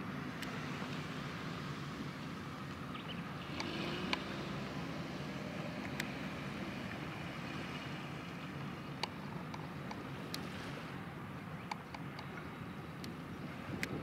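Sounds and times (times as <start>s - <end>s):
wind noise: 13.0s - 14.0s.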